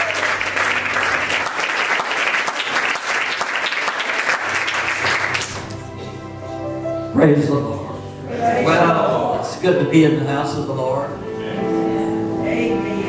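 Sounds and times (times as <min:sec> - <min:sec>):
crowd applauding: 0:00.0 - 0:06.3.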